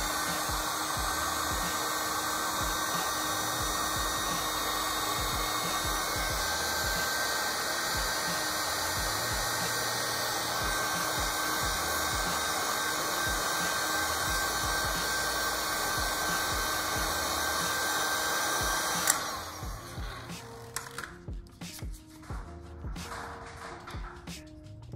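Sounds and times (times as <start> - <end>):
heat gun blowing with whine: 0.0 - 21.1
heat gun switch click: 18.9 - 19.3.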